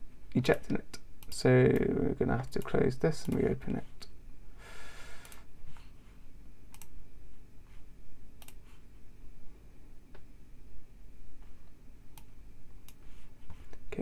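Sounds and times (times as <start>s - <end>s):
computer mouse clicks: 6.7s - 7.0s, 8.4s - 8.6s, 12.1s - 13.8s.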